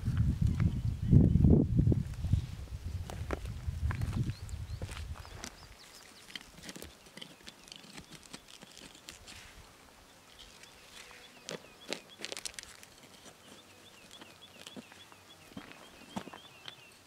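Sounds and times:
leaves rustling: 0:01.9 - 0:16.3
sharp clicks of cutting leaves: 0:06.1 - 0:09.4, 0:11.4 - 0:14.8
high bird chirps: 0:10.1 - 0:17.0.

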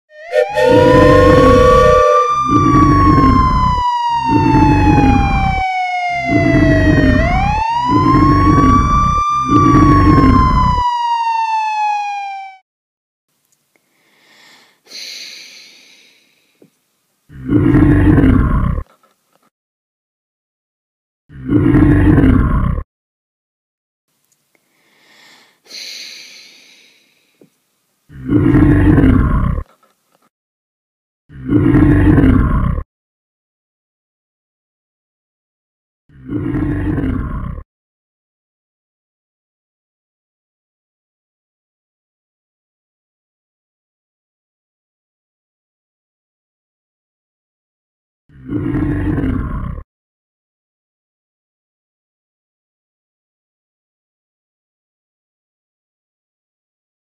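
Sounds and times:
loud low horn blasts: 0:00.1 - 0:03.1
wailing siren: 0:00.1 - 0:12.6
dragon roar: 0:00.2 - 0:05.5
quiet hiss: 0:13.3 - 0:17.3, 0:24.1 - 0:28.1.

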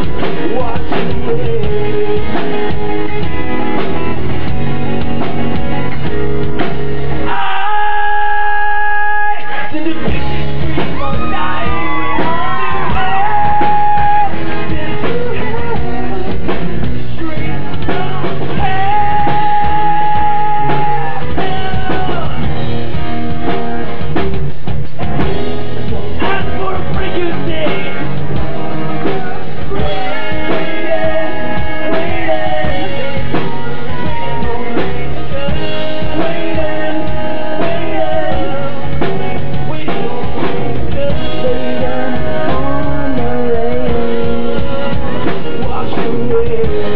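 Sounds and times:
drums: 0:00.0 - 0:46.9
guitar: 0:00.0 - 0:46.9
person singing long notes: 0:07.2 - 0:16.5.

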